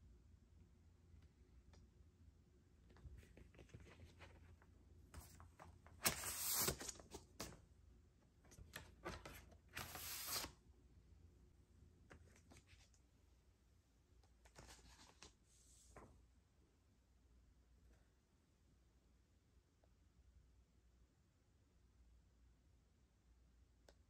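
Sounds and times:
record sleeve sliding against cardboard: 6.0 - 7.5, 9.1 - 10.5.

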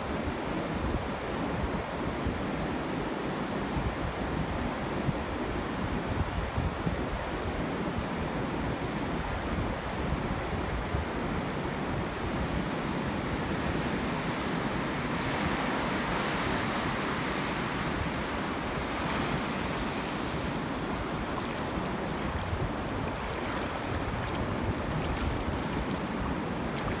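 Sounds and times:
surf washing over sand: 10.5 - 27.0.

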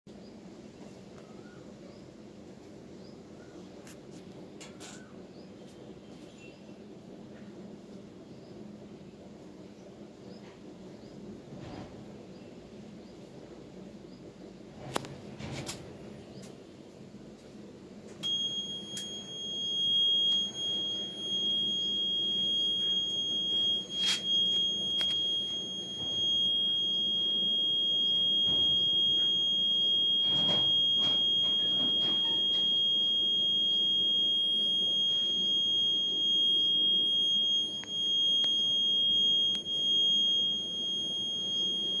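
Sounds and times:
high-pitched alarm buzzer: 18.2 - 42.0.

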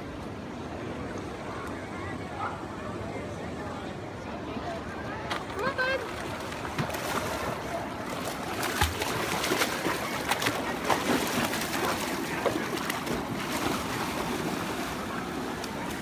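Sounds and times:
dog swimming through water splashing: 6.1 - 16.0.

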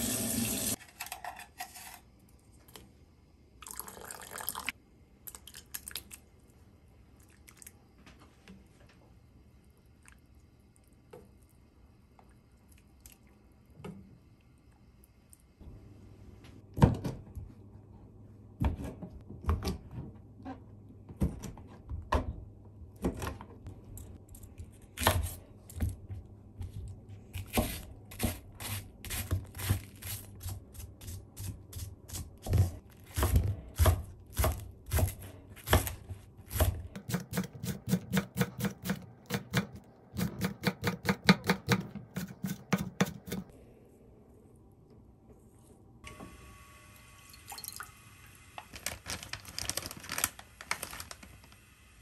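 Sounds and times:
fast knife chopping: 31.8 - 43.5.

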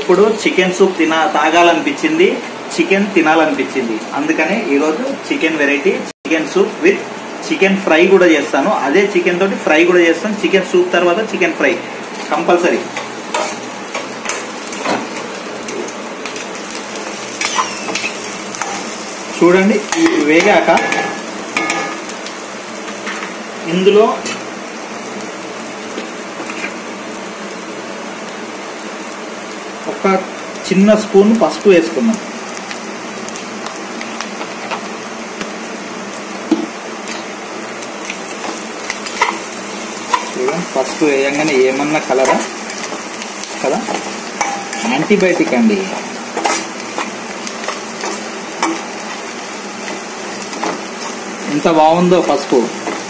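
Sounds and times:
vegetables sizzling in oil: 0.0 - 53.0
steel spatula stirring and scraping: 43.8 - 48.9.

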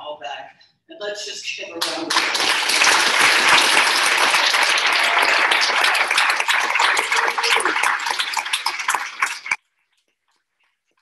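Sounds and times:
audience applauding: 1.8 - 9.6.

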